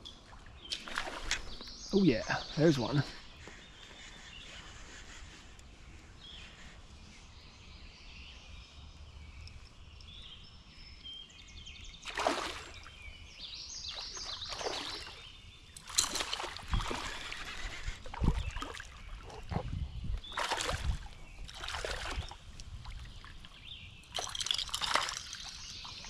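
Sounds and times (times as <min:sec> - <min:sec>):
birds chirping: 0:00.0 - 0:26.0
paddle strokes splashing: 0:12.0 - 0:12.9, 0:14.0 - 0:19.6, 0:20.3 - 0:23.5.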